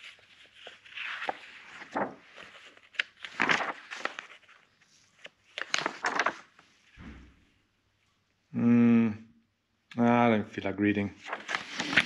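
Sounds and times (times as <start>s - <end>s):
magazine pages turning: 0.0s - 6.8s, 11.2s - 12.0s
soft low thump: 7.0s - 7.4s.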